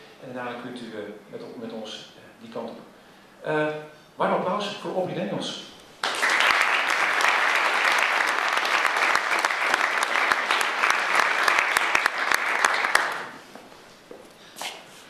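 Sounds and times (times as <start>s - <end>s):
audience applauding: 6.0s - 13.4s.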